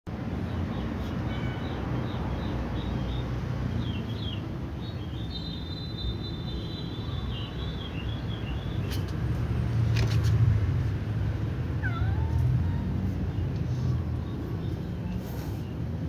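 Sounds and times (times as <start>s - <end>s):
small birds chirping: 0.2s - 9.5s, 11.8s - 16.0s.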